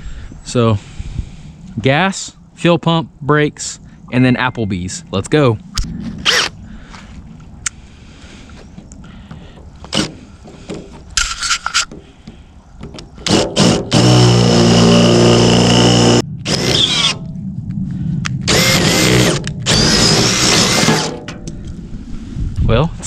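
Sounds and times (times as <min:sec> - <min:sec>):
electric drill drilling: 0:13.2 - 0:17.2, 0:18.5 - 0:21.2.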